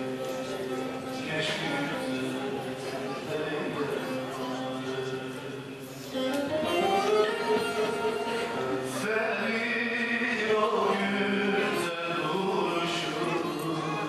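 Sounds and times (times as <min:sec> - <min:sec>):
man singing folk song: 0:00.0 - 0:05.6, 0:06.8 - 0:14.0
long-necked lute playing: 0:00.0 - 0:09.3.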